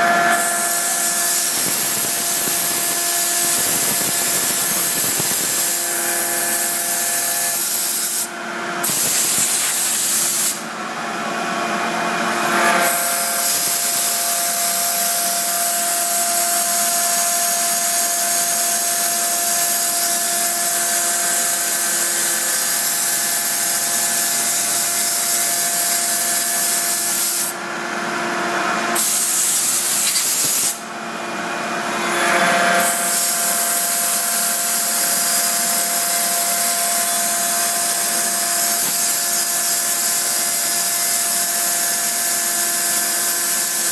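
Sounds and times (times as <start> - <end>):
cutter hissing through wood: 0.0 - 10.7, 12.5 - 27.6, 28.9 - 30.8, 31.9 - 43.9
lathe cutter motor whine: 0.0 - 43.9.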